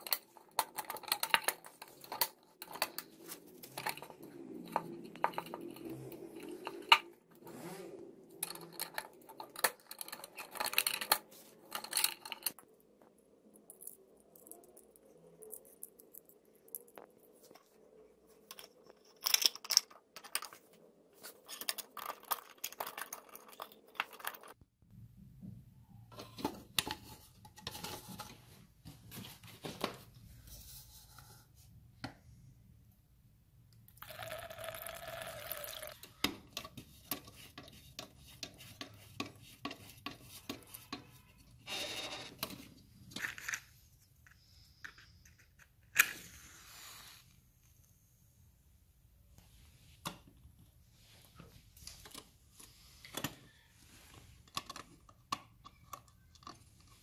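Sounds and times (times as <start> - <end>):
small metal clicks and knocks: 0.0 - 7.1, 8.4 - 17.7, 21.3 - 24.6, 54.4 - 57.0
lamp fuel pouring: 34.0 - 36.0.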